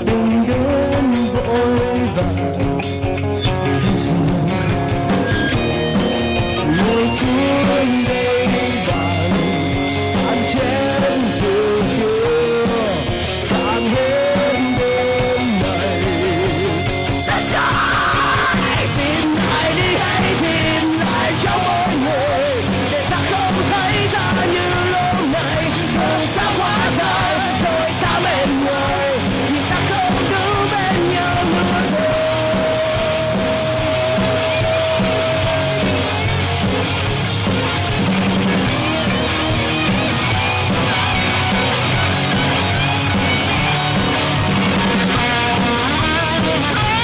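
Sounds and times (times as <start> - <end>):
person singing: 0.0 - 2.8, 3.4 - 5.2, 6.5 - 36.2
live rock band playing: 0.0 - 47.0.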